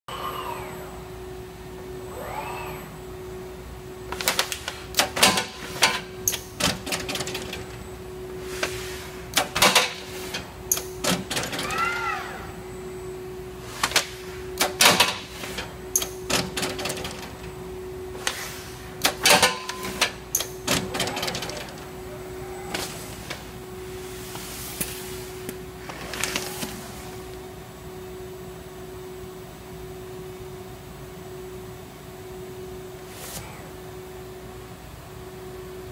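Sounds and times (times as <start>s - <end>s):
servo whine: 0.1s - 24.6s
robot arm humming: 1.9s - 3.5s.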